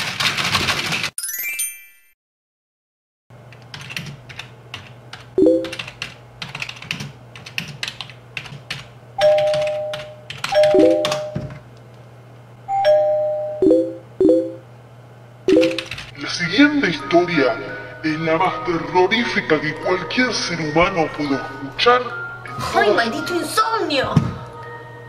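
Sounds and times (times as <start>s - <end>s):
fast typing on keyboard: 0.0s - 1.2s, 3.5s - 11.6s, 15.5s - 16.2s
message alert chimes: 5.4s - 5.8s, 9.2s - 11.5s, 12.7s - 14.6s, 15.5s - 15.9s
low steady hum: 9.2s - 25.0s.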